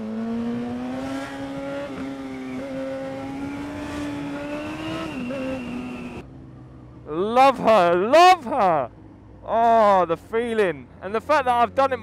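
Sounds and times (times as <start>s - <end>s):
motorcycle engine revving: 0.0s - 6.7s.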